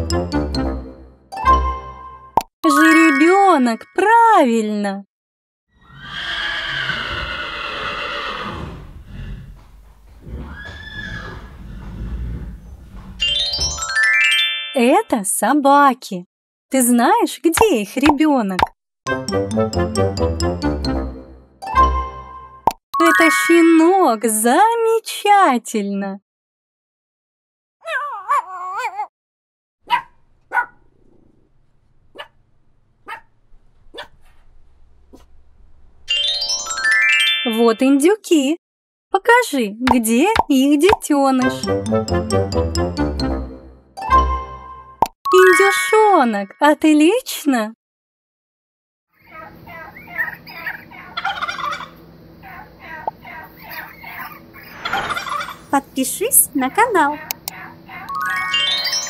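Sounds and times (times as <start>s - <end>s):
rising chime tones: 13.2s - 14.8s, 36.1s - 37.6s, 58.1s - 59.0s
puppies yapping: 49.2s - 52.0s, 53.4s - 55.7s
turkeys calling: 50.0s - 52.0s, 53.7s - 55.8s.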